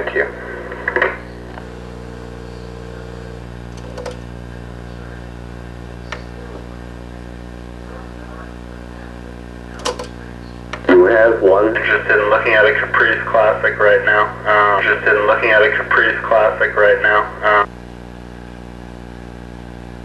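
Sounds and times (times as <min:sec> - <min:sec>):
low electrical hum: 0:00.0 - 0:20.0
faint held tone: 0:01.2 - 0:03.5.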